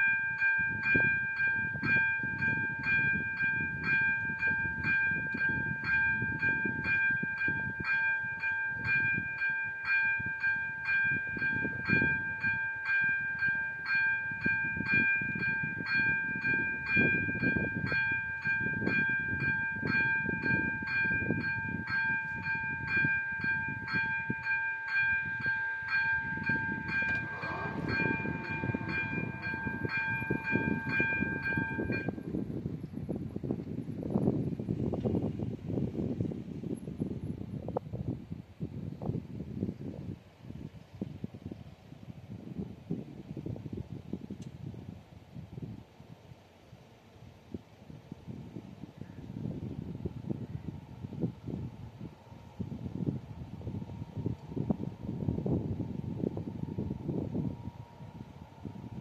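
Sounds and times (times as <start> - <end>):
level crossing bell ringing: 0.0 - 32.2
train rumbling past: 0.0 - 32.6.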